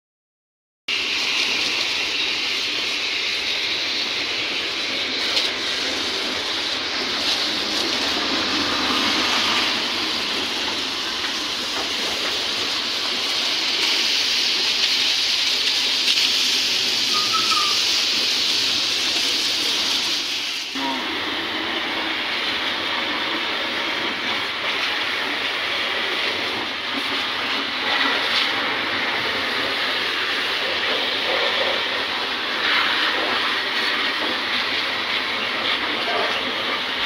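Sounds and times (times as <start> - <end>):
pressure washer spraying metal: 0.9 - 37.0.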